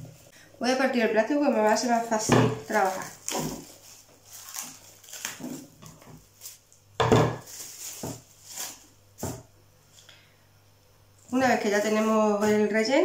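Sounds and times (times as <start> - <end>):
cling film crinkling: 1.4 - 9.0.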